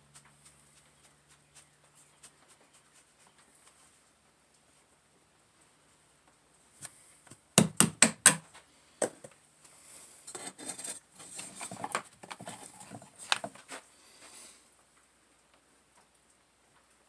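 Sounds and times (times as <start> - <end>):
light scratching and rustling: 0.0 - 5.0, 10.3 - 14.6
sharp knocks on sand mold: 7.6 - 8.4.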